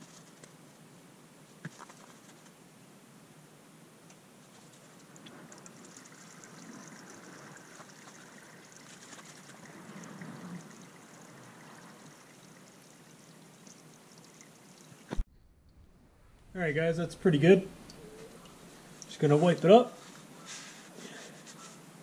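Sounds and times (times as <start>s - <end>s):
fluid trickling into pan: 5.0s - 15.1s.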